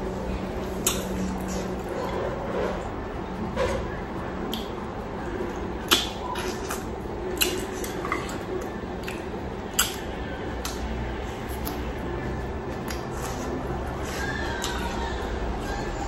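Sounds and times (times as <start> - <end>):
chewing and wet mouth smacks: 5.8 - 10.9, 11.5 - 11.9
sharp mouth smacks: 9.0 - 10.0, 10.6 - 10.8.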